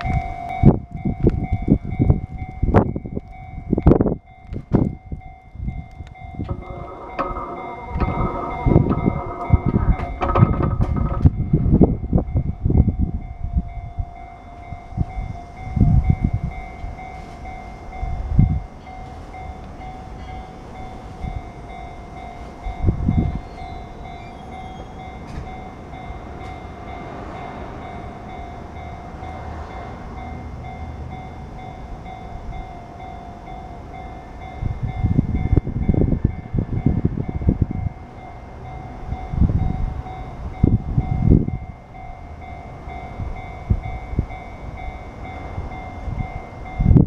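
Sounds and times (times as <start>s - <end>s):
wind rumble on microphone: 0.0s - 20.2s, 20.8s - 32.8s, 33.5s - 47.0s
level crossing alarm dinging: 0.0s - 27.2s.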